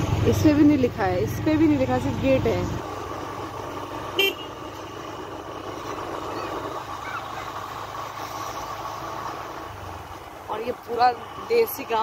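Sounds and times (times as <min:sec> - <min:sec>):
steady vehicle hum: 0:00.0 - 0:12.0
short car horn toot: 0:04.2 - 0:04.5.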